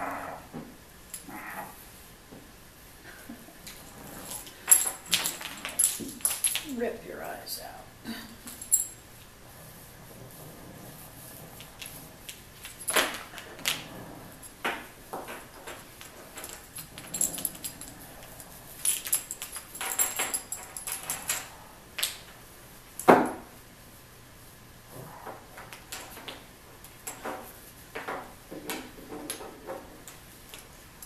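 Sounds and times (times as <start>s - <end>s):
light jingling: 3.7s - 6.9s, 8.4s - 9.1s, 15.7s - 21.7s.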